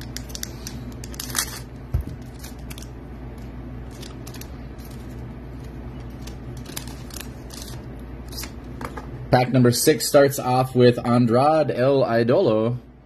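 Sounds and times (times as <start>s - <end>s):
low hum: 0.0s - 13.0s
foil wrapper crinkling: 1.0s - 2.9s, 3.8s - 8.6s.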